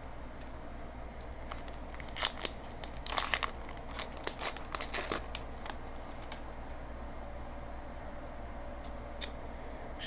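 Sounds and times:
card pack wrapper crinkling and tearing: 0:01.3 - 0:06.4.

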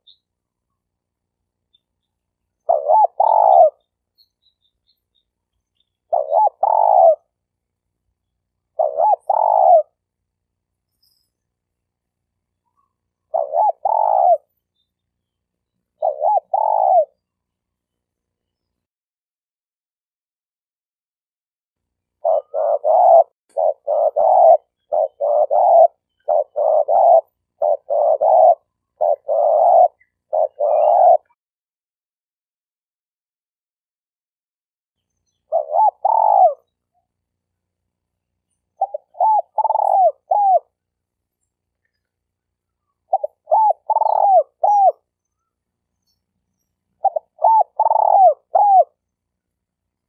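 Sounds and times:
dove cooing: 0:02.6 - 0:03.9, 0:06.1 - 0:07.4, 0:08.7 - 0:10.0, 0:12.8 - 0:14.5, 0:16.0 - 0:17.2, 0:22.2 - 0:31.4, 0:35.5 - 0:36.8, 0:38.8 - 0:40.8, 0:43.0 - 0:45.1, 0:47.0 - 0:49.0.

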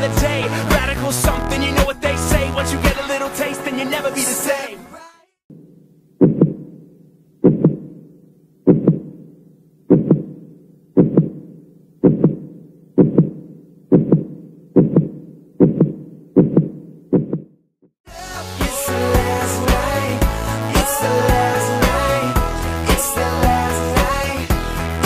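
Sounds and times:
heartbeat thumps: 0:06.2 - 0:06.7, 0:07.4 - 0:08.0, 0:08.7 - 0:09.2, 0:09.9 - 0:10.4, 0:11.0 - 0:17.5.

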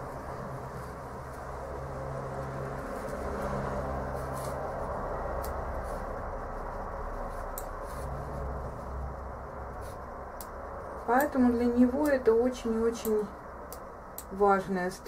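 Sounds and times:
low background rumble and hum: 0:00.0 - 0:15.0.

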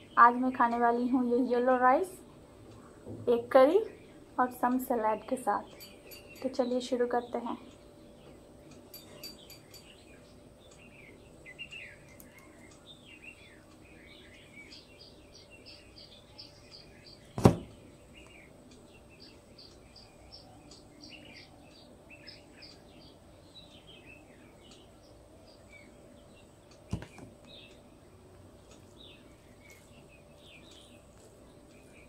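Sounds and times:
small birds chirping: 0:00.0 - 0:32.0
sharp knock: 0:17.4 - 0:17.7.

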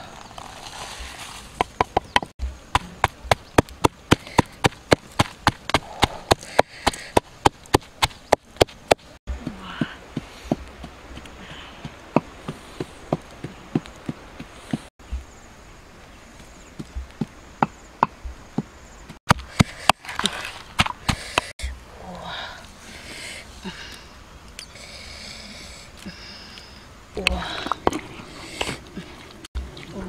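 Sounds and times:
pestle pounding in wooden mortar: 0:01.6 - 0:09.1.

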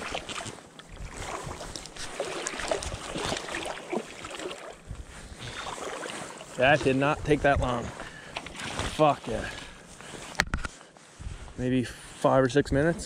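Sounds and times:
water splashing and sloshing: 0:00.0 - 0:11.5
wind rumble on microphone: 0:00.9 - 0:03.4, 0:04.8 - 0:05.7, 0:06.7 - 0:08.1, 0:11.2 - 0:11.7.

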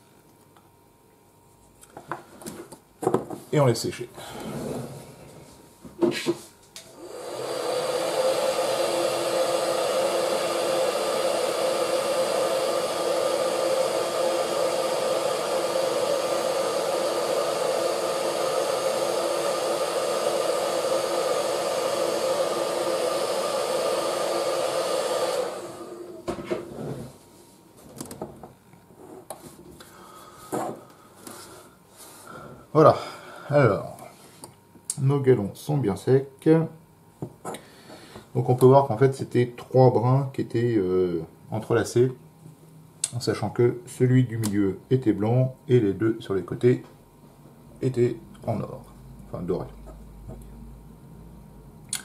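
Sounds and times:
hair dryer running: 0:06.8 - 0:26.7.

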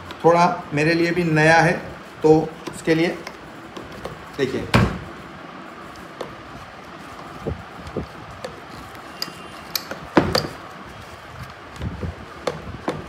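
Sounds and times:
metal clicks and knocks: 0:09.2 - 0:10.6.

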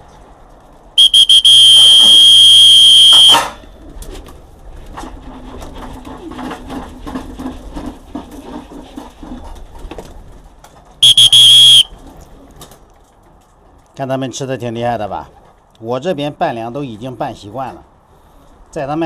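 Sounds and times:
loud high whistle: 0:01.0 - 0:03.5, 0:11.0 - 0:11.9.

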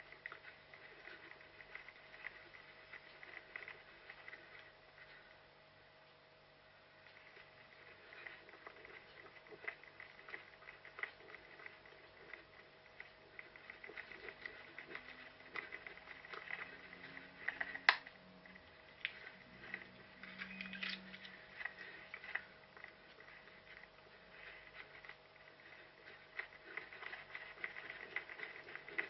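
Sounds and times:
rustling: 0:00.0 - 0:05.5, 0:06.9 - 0:29.0
faint steady hum: 0:00.0 - 0:29.0
running footsteps crackling: 0:07.2 - 0:29.0.

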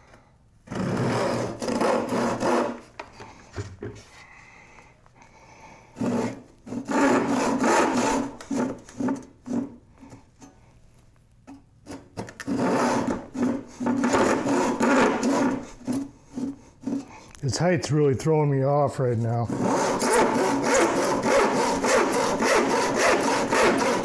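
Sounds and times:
hand saw cutting wood: 0:00.7 - 0:02.9, 0:05.9 - 0:09.8, 0:11.8 - 0:17.2, 0:19.0 - 0:24.0.

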